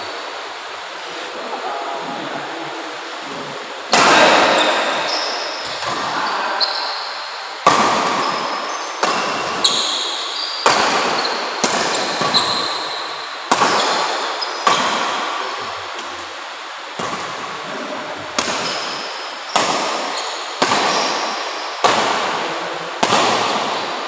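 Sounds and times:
shoes squeaking on court: 4.4 - 7.2, 8.1 - 13.0, 13.6 - 15.0, 18.6 - 21.7
rackets smacking shuttlecock: 9.0 - 12.9, 13.5 - 15.3, 18.4 - 22.4, 23.0 - 23.8.

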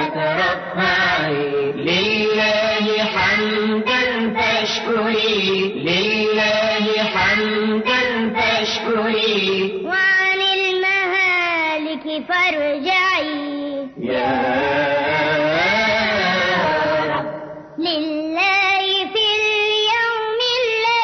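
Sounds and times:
chanted religious singing: 0.0 - 10.2, 13.8 - 19.3.

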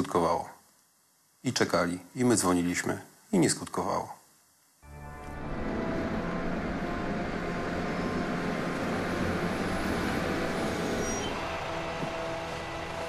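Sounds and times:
road noise: 5.4 - 12.1
bus diesel engine passing: 5.4 - 13.0.

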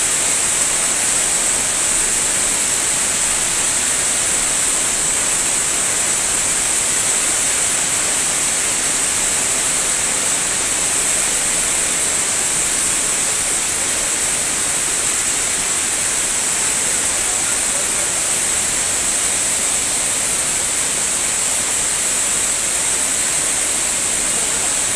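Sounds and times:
floodwater rushing: 0.0 - 24.9.

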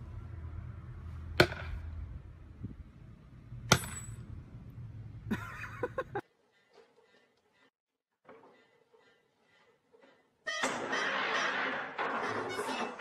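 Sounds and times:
low steady rumble: 0.0 - 5.4.

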